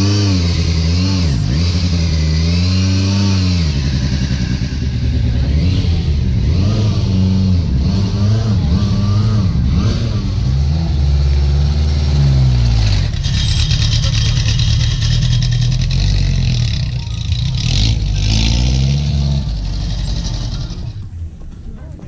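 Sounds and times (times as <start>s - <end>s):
car engine revving: 0.0s - 21.4s.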